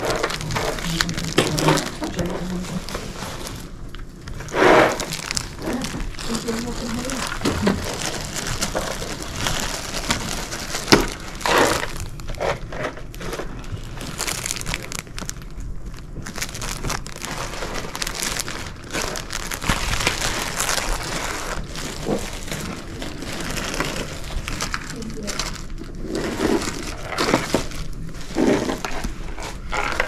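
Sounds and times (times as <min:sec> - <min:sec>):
plastic bags crinkling: 0:00.0 - 0:30.0.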